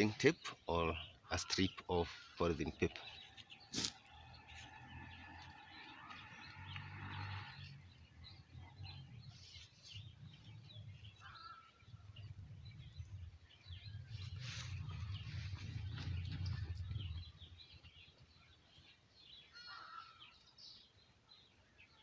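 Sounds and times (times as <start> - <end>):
birds chirping: 0.0 - 22.0
low rumble: 11.8 - 18.0.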